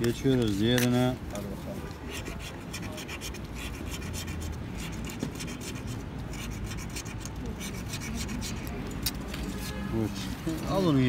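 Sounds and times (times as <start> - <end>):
coin scratching scratch card: 1.9 - 9.8.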